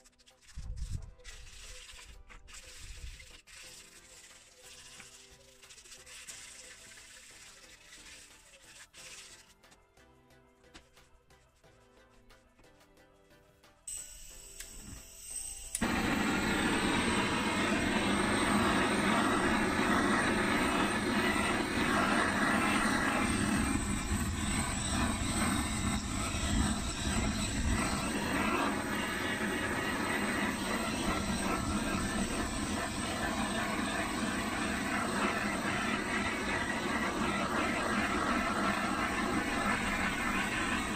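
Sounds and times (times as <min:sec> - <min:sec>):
blowtorch flame hissing: 0:15.7 - 0:40.9.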